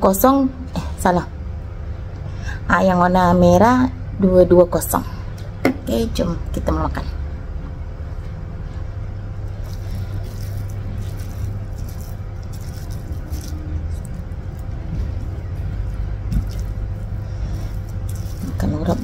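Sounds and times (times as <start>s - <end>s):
steady low hum: 0.0s - 19.0s
fingers squishing rice: 9.4s - 19.0s.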